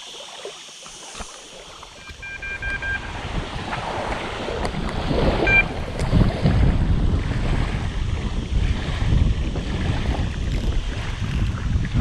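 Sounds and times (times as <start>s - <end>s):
small waves lapping: 0.0s - 12.0s
bite alarm beeping: 2.0s - 3.3s, 5.4s - 5.8s
wind buffeting microphone: 2.0s - 12.0s.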